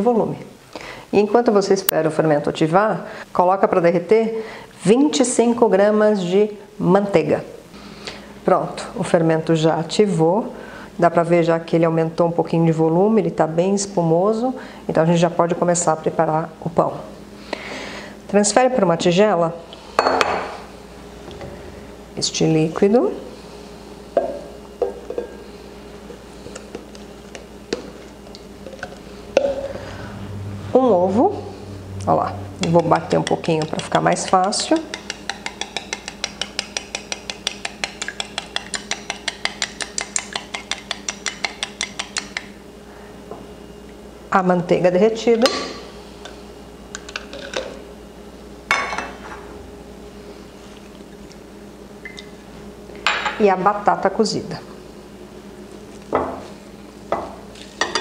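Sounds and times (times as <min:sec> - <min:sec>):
faint steady hum: 0:00.0 - 0:58.0
plastic cup tapping glass bowl: 0:24.2 - 0:25.3, 0:32.8 - 0:42.2.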